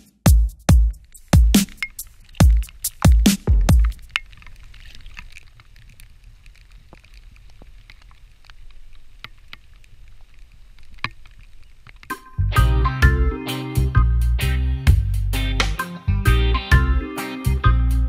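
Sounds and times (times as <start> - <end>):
electronic drum beats: 0.0 - 4.1, 14.9 - 17.8
handling clicks and rustles: 1.0 - 12.3
wind rumbling on microphone: 3.5 - 12.8.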